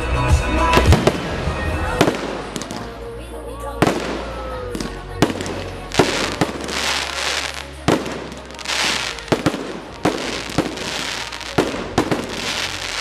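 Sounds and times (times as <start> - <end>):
fireworks bangs: 0.7 - 2.9, 3.8 - 13.0
fireworks hiss and crackle: 3.8 - 13.0.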